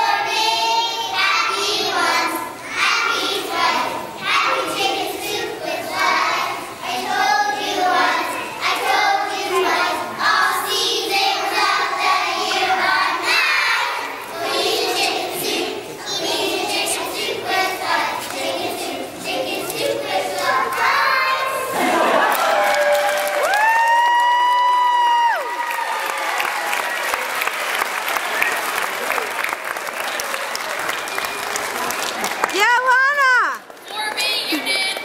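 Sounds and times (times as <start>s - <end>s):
children singing in unison: 0.0s - 22.2s.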